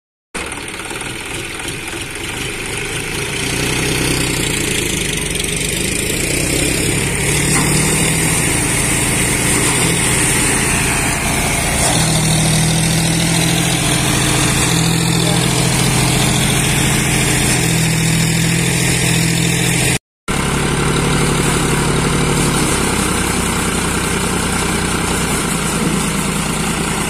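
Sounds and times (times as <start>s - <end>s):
diesel tractor engine running: 0.4s - 27.0s
thresher drum turning: 6.7s - 19.1s.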